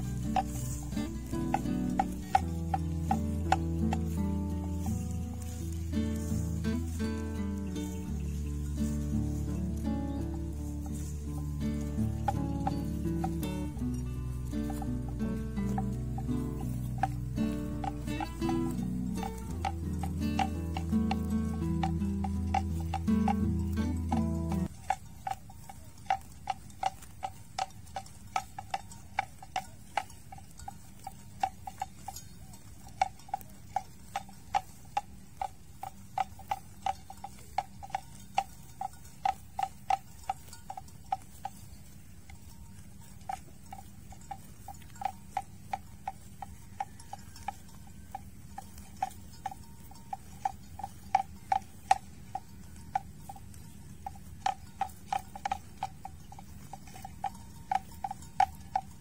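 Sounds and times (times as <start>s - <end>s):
buffalo tearing grass: 0.0s - 41.6s.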